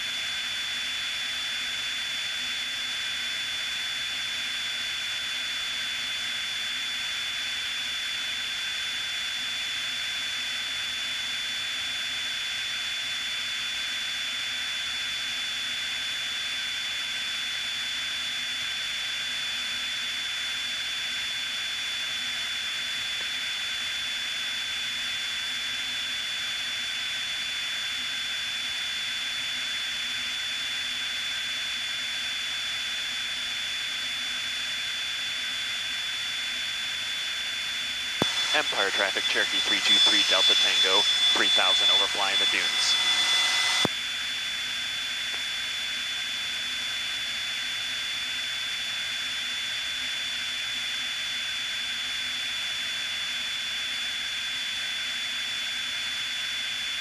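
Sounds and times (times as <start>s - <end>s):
plane engine and propeller drone: 0.0s - 57.0s
steady high whine: 34.9s - 43.9s.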